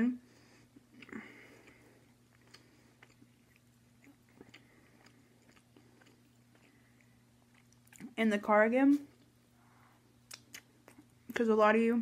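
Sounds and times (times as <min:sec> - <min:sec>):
chewing mouth clicks and smacks: 0:00.8 - 0:08.1, 0:10.2 - 0:11.1.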